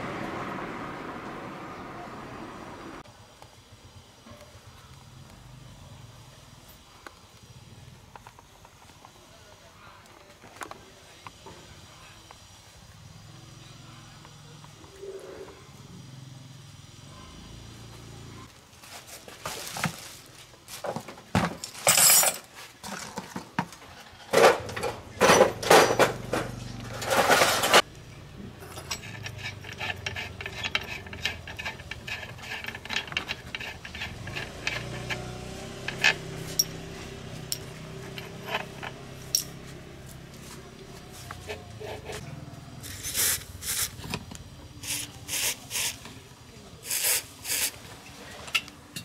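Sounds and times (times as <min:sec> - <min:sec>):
metal tools clinking: 0:21.6 - 0:23.0, 0:28.6 - 0:39.8.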